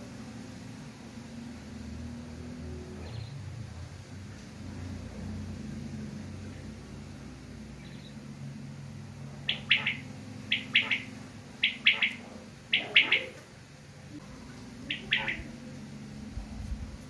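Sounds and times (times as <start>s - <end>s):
quail calling: 9.5s - 13.4s, 14.8s - 15.6s.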